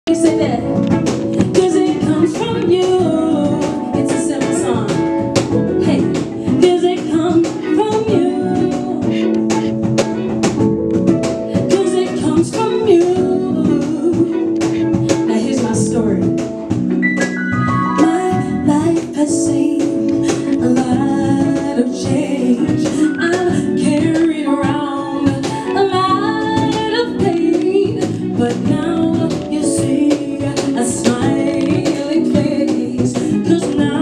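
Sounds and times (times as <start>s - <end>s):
woman singing into a microphone: 0.1s - 9.8s, 11.5s - 16.5s, 18.0s - 34.0s
cajon beat: 0.1s - 34.0s
guitar: 0.1s - 34.0s.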